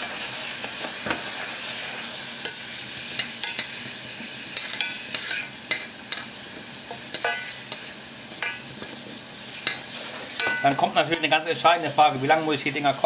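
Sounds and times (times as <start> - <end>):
glaze bubbling and sizzling: 0.0 - 13.0
metal spoon clinking against pan: 3.2 - 3.8, 4.6 - 6.3, 7.1 - 7.8, 8.4 - 8.6, 9.6 - 9.8, 10.4 - 11.4.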